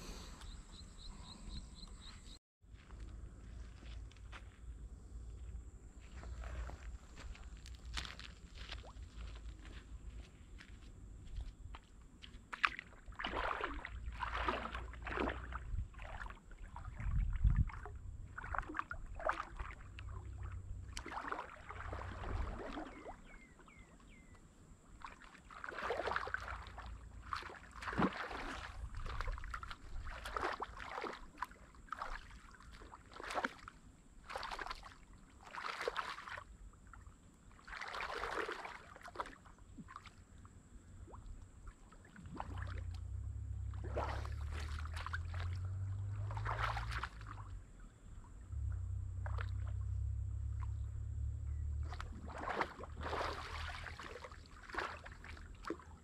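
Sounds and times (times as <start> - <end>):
water splashing and swishing: 12.0 - 56.0
low rumble: 42.8 - 53.2.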